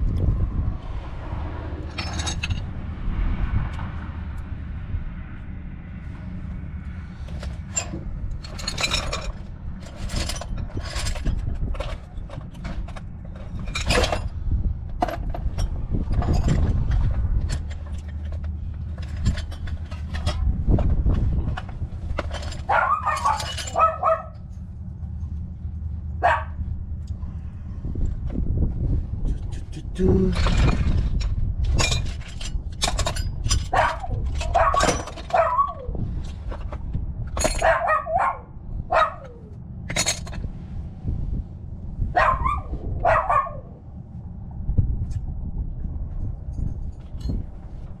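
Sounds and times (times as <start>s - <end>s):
steady low hum: 0.0s - 35.2s
metal hand tools clinking: 22.2s - 24.0s.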